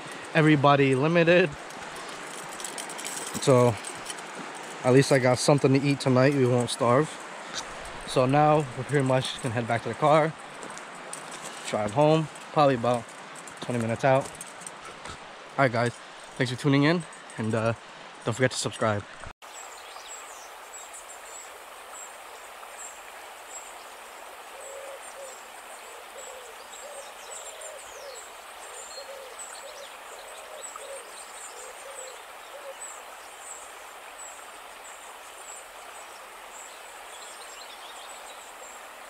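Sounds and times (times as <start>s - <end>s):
steady hiss: 0.0s - 39.0s.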